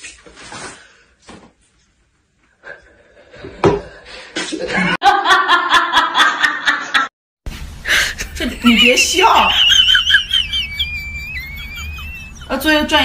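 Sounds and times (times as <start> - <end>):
woman laughing loudly: 4.8 - 7.1, 7.9 - 13.0.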